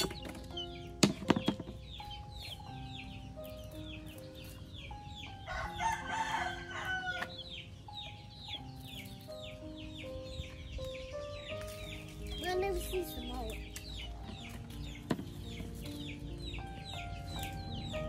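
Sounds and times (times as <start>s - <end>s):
slow melodic background music: 0.0s - 18.0s
rooster crowing: 5.5s - 7.3s.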